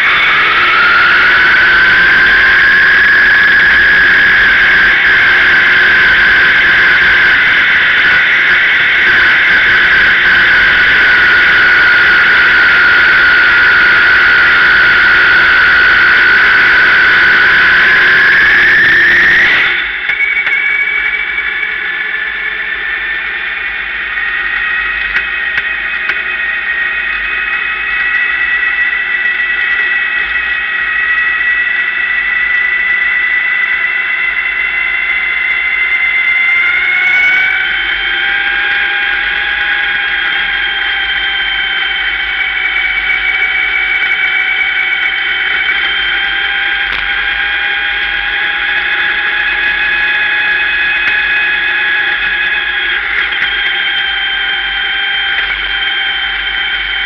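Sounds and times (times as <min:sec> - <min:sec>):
race car engine whine: 0:00.0 - 0:57.0.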